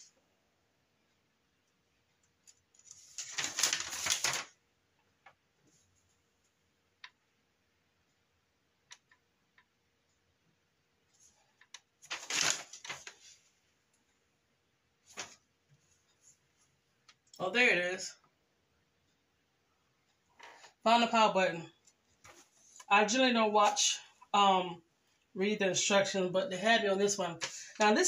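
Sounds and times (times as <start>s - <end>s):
paper rustling: 2.8s - 4.5s, 11.2s - 13.6s, 15.1s - 15.4s, 22.2s - 22.9s.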